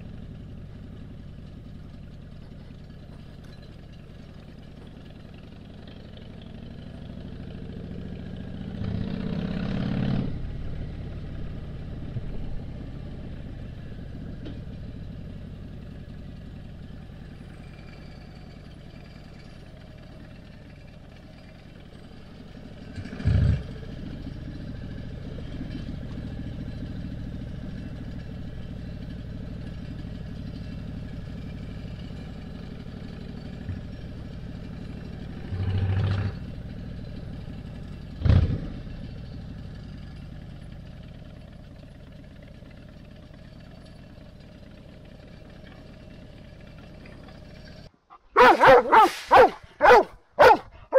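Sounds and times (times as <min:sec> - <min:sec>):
motorcycle engine running: 0:00.0 - 0:50.9
large dog barking loudly: 0:48.3 - 0:50.9.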